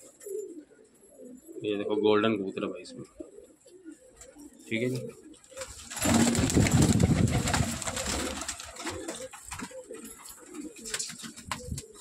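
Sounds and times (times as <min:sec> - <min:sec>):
pigeons cooing: 0:00.0 - 0:12.0
wings flapping and scuffling: 0:04.2 - 0:12.0.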